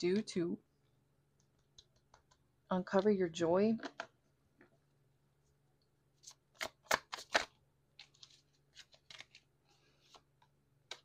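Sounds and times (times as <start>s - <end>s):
cards being shuffled: 6.2s - 11.0s.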